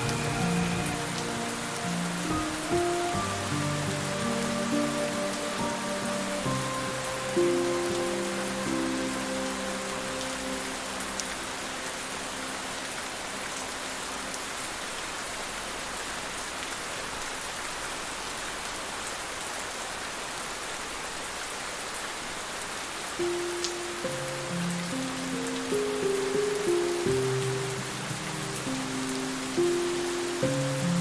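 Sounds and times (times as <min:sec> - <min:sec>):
held music notes: 0:00.0 - 0:11.6
steady rain falling: 0:00.0 - 0:31.0.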